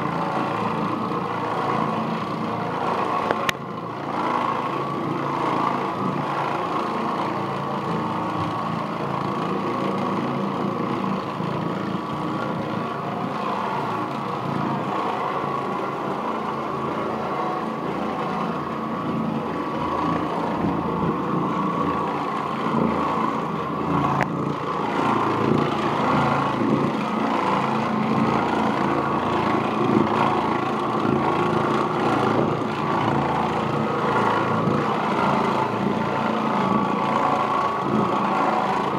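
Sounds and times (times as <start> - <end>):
floor machine motor hum: 0.0 - 38.9.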